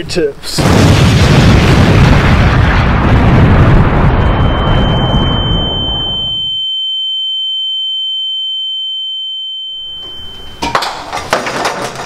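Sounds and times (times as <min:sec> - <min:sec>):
explosion rumble: 0:00.6 - 0:06.4
high-pitched ringing tone: 0:04.2 - 0:10.9.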